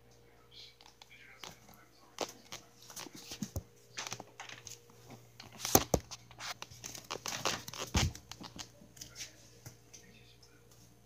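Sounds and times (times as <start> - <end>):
faint steady hum: 0.0 - 11.0
handling noise rustling: 1.4 - 9.4.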